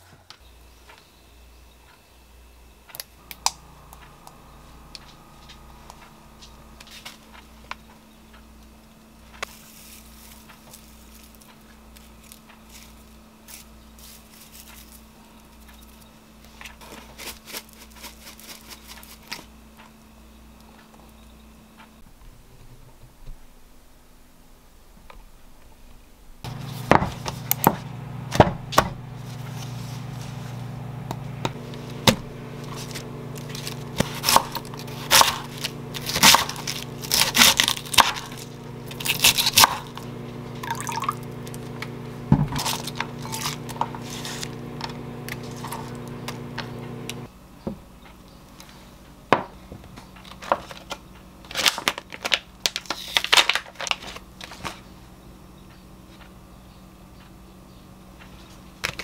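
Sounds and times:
steady low hum: 0.0s - 50.2s
knife chopping cabbage on board: 32.9s - 39.9s
plastic packet crinkling: 42.6s - 46.2s, 51.5s - 54.6s.

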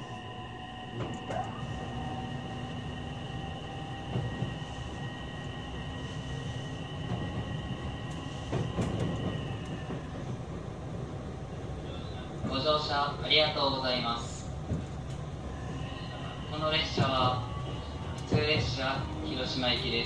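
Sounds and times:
train motors humming: 0.0s - 20.0s
train wheels rumbling: 0.0s - 20.0s
rail-joint clicks: 1.0s - 1.6s, 7.1s - 10.4s, 18.0s - 20.0s.

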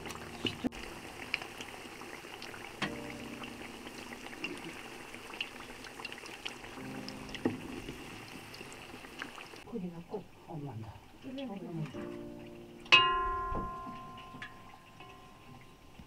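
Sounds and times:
food sizzling in hot oil: 0.0s - 9.7s.

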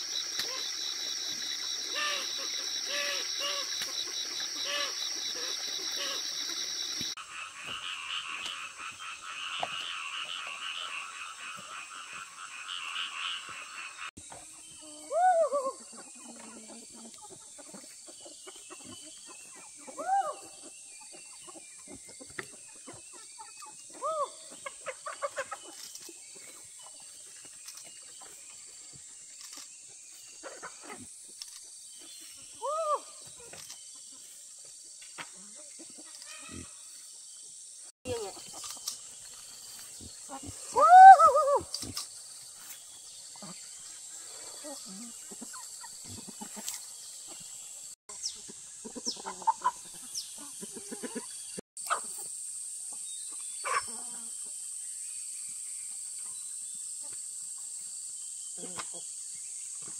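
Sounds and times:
rising and falling animal call: 40.3s - 41.8s.

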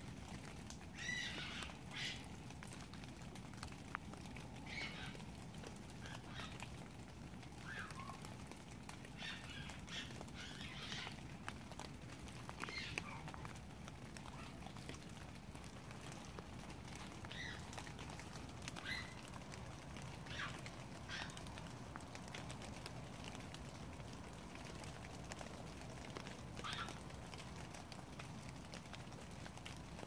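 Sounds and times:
rain pattering and dripping: 0.0s - 30.0s.

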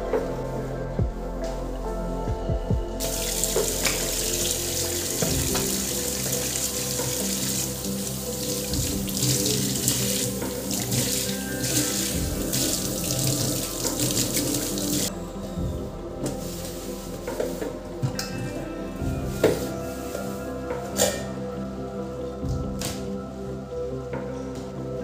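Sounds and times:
hands rinsing under water: 3.0s - 15.1s
tap water running into sink: 5.2s - 15.1s.

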